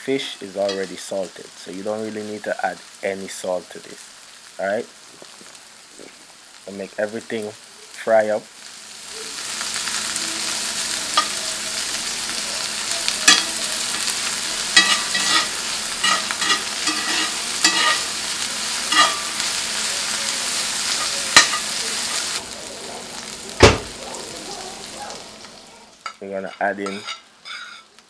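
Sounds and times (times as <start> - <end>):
vegetables sizzling in oil: 0.0 - 28.0
heavy thump: 23.6 - 24.0.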